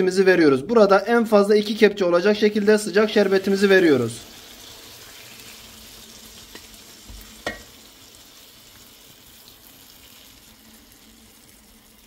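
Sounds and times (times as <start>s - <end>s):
syrup sizzling on hot pastry: 2.4s - 12.0s.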